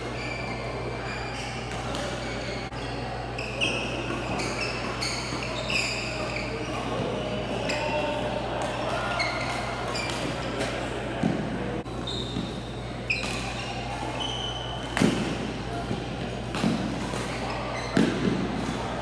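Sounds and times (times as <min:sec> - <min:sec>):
shoes squeaking on hall floor: 0:00.0 - 0:19.0
racket hitting shuttlecock: 0:12.3 - 0:19.0.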